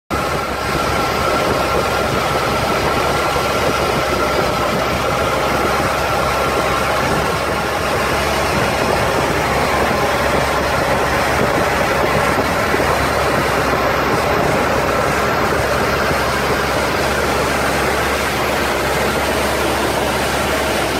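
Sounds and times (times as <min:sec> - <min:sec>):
boat engine drone: 0:00.1 - 0:20.9.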